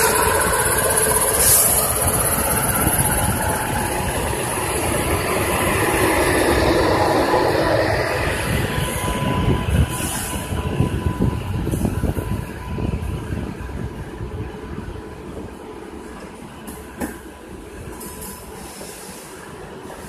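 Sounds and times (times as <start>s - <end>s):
locomotive rumble: 0.0s - 20.0s.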